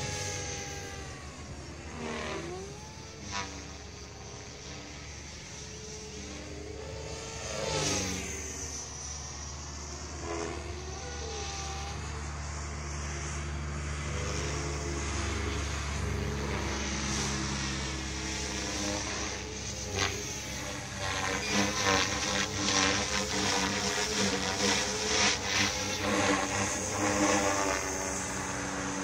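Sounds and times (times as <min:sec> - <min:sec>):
model helicopter motor and rotor drone: 0:00.0 - 0:29.0.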